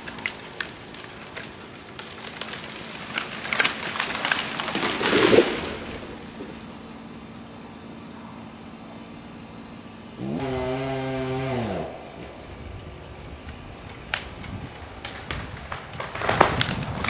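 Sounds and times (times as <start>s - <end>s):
tree trunk cracking and snapping: 0.0s - 6.7s, 10.2s - 17.0s
tree crashing down: 0.0s - 6.8s, 10.2s - 17.0s
swish of branches: 4.6s - 6.1s.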